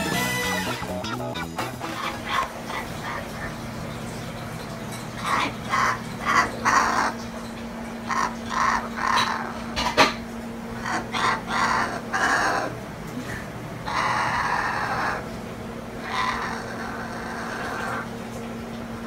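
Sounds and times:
cockatoo harsh raspy calls: 0.0s - 3.8s, 5.2s - 7.4s, 8.0s - 12.8s, 13.8s - 15.4s, 16.0s - 18.2s.

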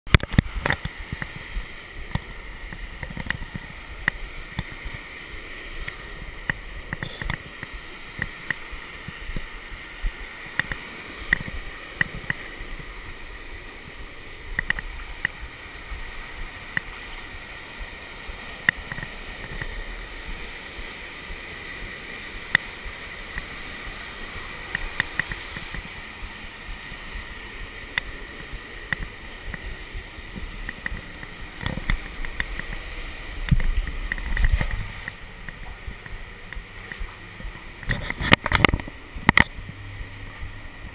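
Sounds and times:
sharp clicks and knocks: 0.1s - 5.0s, 5.8s - 9.5s, 10.1s - 12.6s, 14.5s - 15.5s, 18.6s - 19.8s, 24.6s - 26.0s, 27.9s - 39.8s
river rapids rushing: 0.1s - 40.9s
waterfall pouring: 0.1s - 40.9s.

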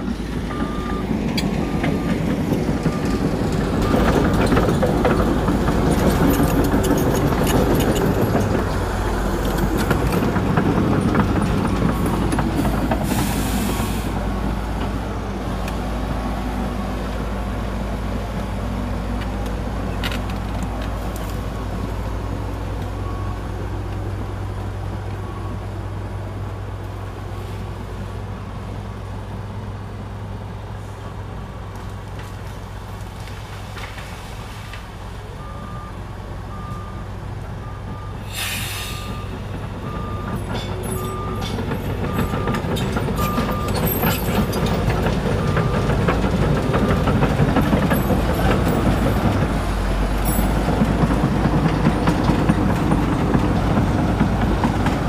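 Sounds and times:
heavy diesel machinery running: 0.0s - 34.1s, 35.0s - 55.0s
reversing alarm beeping: 0.5s - 2.2s, 35.4s - 49.4s
air brake hiss: 13.0s - 14.2s, 38.2s - 39.2s.

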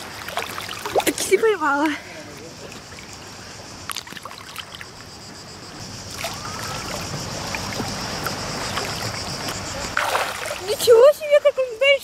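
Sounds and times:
small splashes and drips: 0.0s - 3.1s, 6.1s - 11.6s
seawater lapping: 0.0s - 5.1s, 5.9s - 12.0s.

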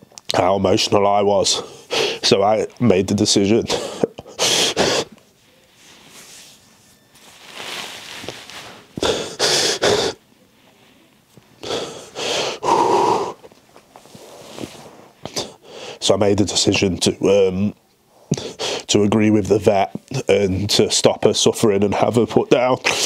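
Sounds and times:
man sniffing: 1.6s - 2.2s, 3.7s - 5.2s, 8.7s - 10.2s, 11.6s - 13.5s, 18.2s - 18.9s
man sobbing: 3.6s - 5.2s, 9.0s - 10.2s.

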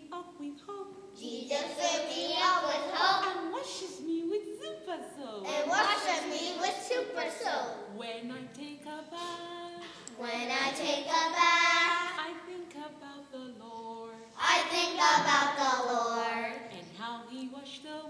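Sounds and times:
children singing: 1.2s - 4.0s, 5.5s - 8.0s, 10.1s - 12.5s, 14.4s - 16.8s.

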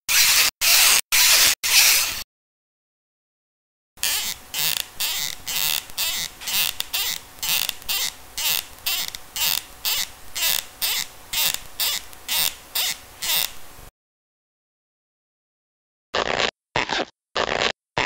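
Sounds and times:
squeaky cartoon footsteps: 4.0s - 13.5s, 16.2s - 18.0s.

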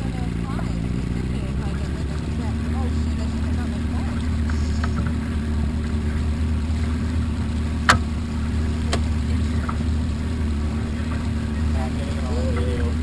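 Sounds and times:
motorboat engine running: 0.0s - 13.0s
sharp knocks: 7.9s - 8.2s.

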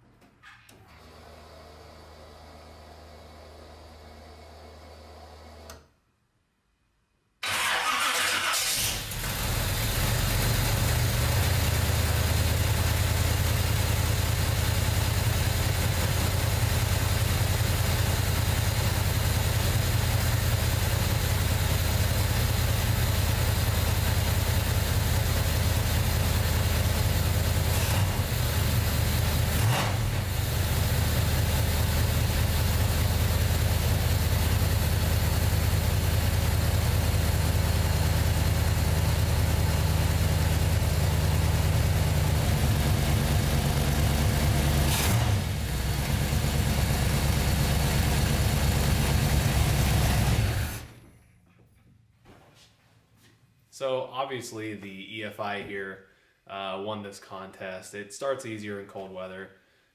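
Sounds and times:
engine starting flare: 7.4s - 10.2s
car engine idling: 7.5s - 51.0s.

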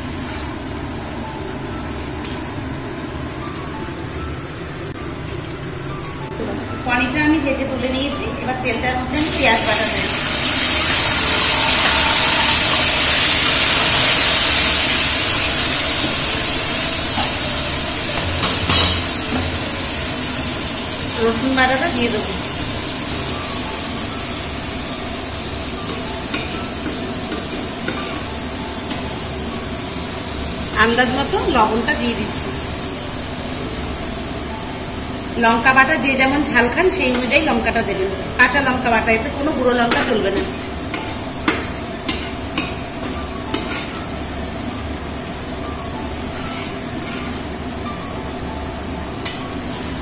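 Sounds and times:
paste sizzling in hot oil: 9.2s - 33.4s.

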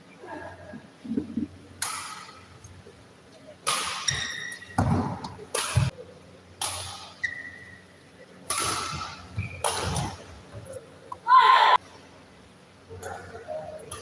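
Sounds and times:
badminton racket hitting shuttlecock: 3.6s - 5.9s, 6.6s - 7.2s, 8.5s - 10.2s
shoes squeaking on court floor: 4.0s - 5.9s, 7.0s - 7.9s, 8.9s - 10.8s.

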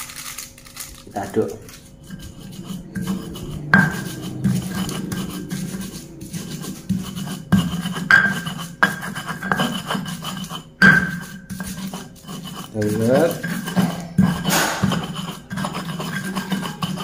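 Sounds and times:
stone pestle grinding in mortar: 1.2s - 17.0s
pestle knocks: 14.5s - 15.0s.

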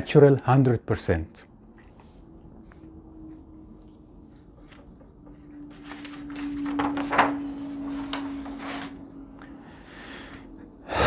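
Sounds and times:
faint steady hum: 0.0s - 11.0s
paper sheet rustling: 4.0s - 9.1s.

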